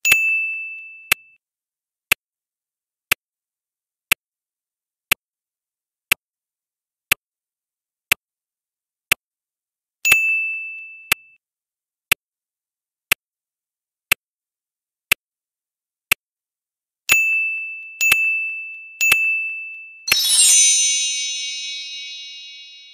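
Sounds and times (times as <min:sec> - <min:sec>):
ringing chime: 0:17.5 - 0:22.9
short ringing ding: 0:20.1 - 0:22.9.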